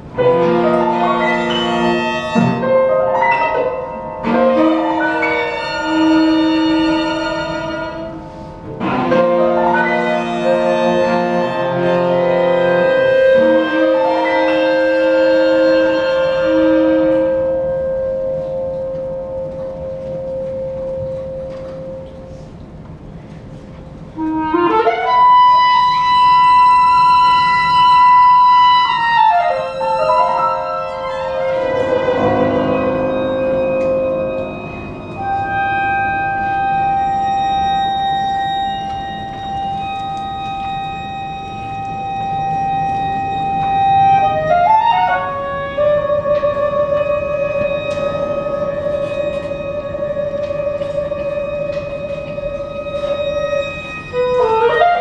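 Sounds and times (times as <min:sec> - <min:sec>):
cello: 0:00.0 - 0:22.2
clarinet: 0:00.0 - 0:55.0
piano: 0:00.0 - 0:55.0
chamber quartet playing classical music: 0:00.1 - 0:55.0
violin: 0:00.2 - 0:17.5.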